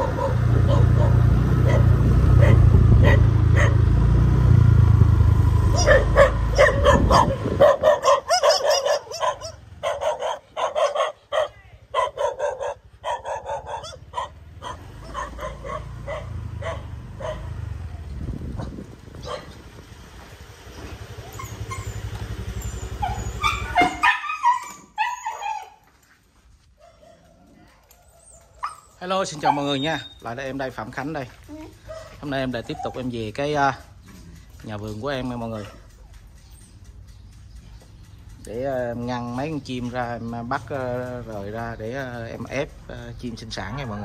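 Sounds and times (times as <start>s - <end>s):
dogs barking and yipping: 0.0s - 4.2s, 5.4s - 44.0s
low engine rumble: 0.0s - 24.1s, 27.8s - 44.0s
dog whining: 21.2s - 25.8s.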